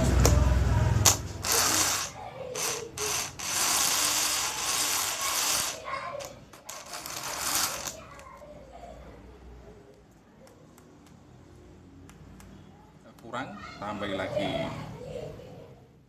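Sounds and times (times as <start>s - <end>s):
small electric motor running: 1.4s - 8.0s.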